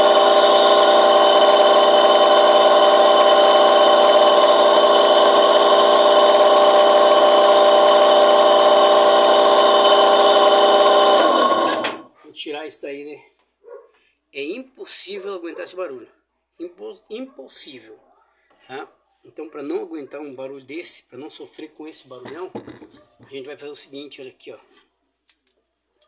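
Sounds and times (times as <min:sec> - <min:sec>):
washing machine motor whining: 0:00.0 - 0:12.1.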